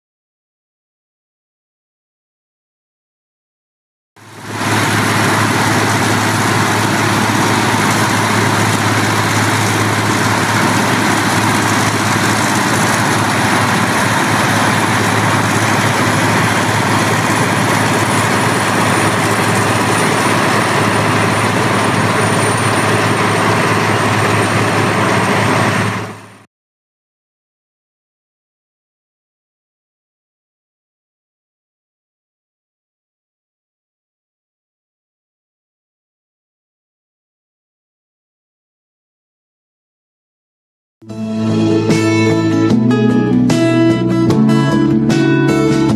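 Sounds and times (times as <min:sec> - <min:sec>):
wood grinder drone: 0:04.2 - 0:26.4.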